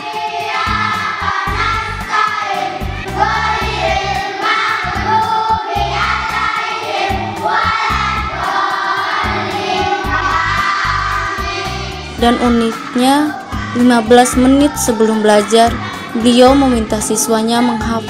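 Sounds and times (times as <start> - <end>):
children chanting in unison: 0.0 - 16.2
background music: 0.0 - 18.0.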